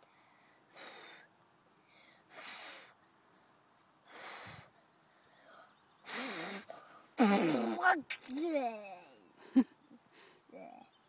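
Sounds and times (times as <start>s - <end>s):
child blowing puffs of breath: 0.3s - 1.3s, 1.9s - 3.0s, 4.1s - 4.7s, 5.3s - 7.6s.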